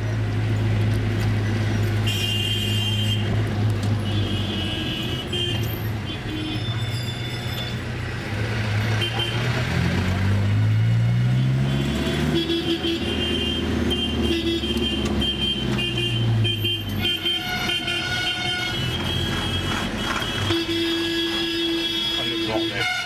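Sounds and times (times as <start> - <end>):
street traffic: 0.0 - 23.0
vehicle horns honking: 2.0 - 3.4, 4.0 - 7.8, 8.8 - 9.7, 11.3 - 23.0
engine pulling away: 7.8 - 12.4.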